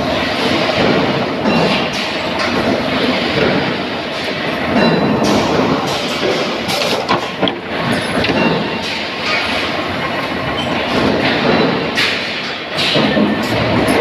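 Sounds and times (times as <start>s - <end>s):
stamping presses running: 0.0s - 14.0s
sharp metal knocks: 4.8s - 9.4s.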